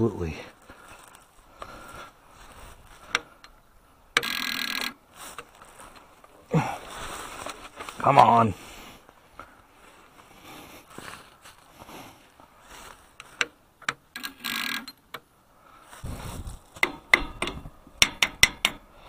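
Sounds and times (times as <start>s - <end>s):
starter clicks: 3.0s - 5.5s, 13.2s - 15.3s
mechanical rattles: 4.2s - 5.0s, 13.8s - 15.0s.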